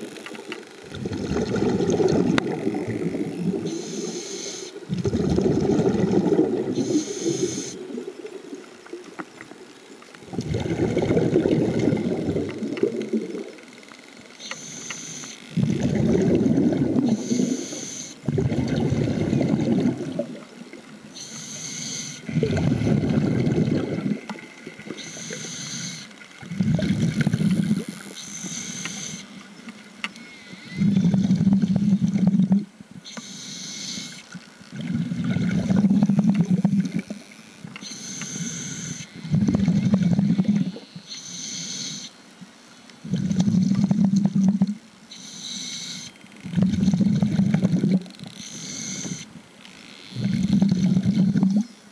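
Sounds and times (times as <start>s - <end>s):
low buzzing hum: 0.0s - 51.9s
exhaled bubbling rumble: 0.8s - 3.7s, 4.9s - 6.9s, 10.2s - 13.6s, 15.6s - 17.2s, 18.2s - 20.6s, 22.3s - 24.9s, 26.4s - 27.8s, 30.8s - 32.7s, 34.8s - 37.1s, 39.3s - 40.8s, 43.0s - 44.8s, 46.5s - 48.1s, 50.2s - 51.7s
regulator inhale hiss: 3.6s - 4.8s, 6.7s - 8.0s, 14.4s - 15.5s, 17.1s - 18.3s, 21.2s - 22.3s, 25.0s - 26.1s, 27.4s - 29.4s, 33.0s - 34.3s, 37.8s - 39.1s, 41.1s - 42.2s, 45.1s - 46.2s, 48.4s - 49.3s.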